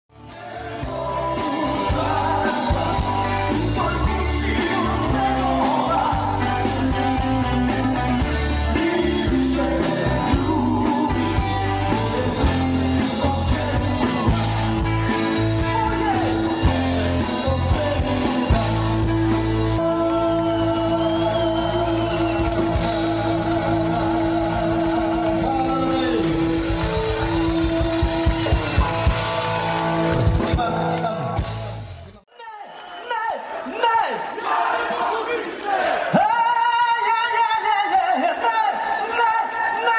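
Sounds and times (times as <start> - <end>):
person singing: 0.2 - 29.3
live rock band playing: 0.2 - 32.2.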